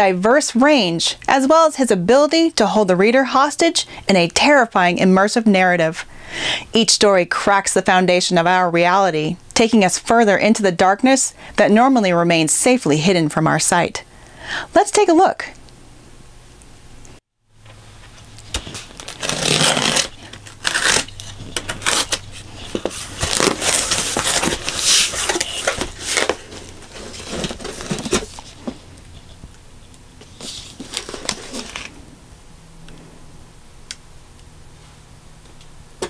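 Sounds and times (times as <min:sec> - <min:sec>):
cardboard flaps scraping: 0:17.7 - 0:29.3, 0:30.2 - 0:31.9
packing tape tearing: 0:18.4 - 0:28.6, 0:30.4 - 0:31.9.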